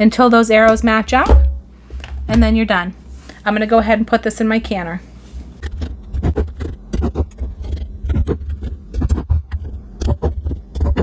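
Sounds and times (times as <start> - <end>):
handling thumps on countertop: 0.7 - 2.6.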